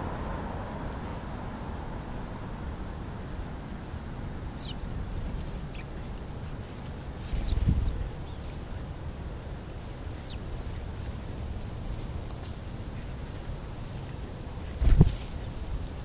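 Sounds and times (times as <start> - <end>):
low outdoor rumble: 0.0 - 16.0
sparrows chirping: 4.4 - 15.7.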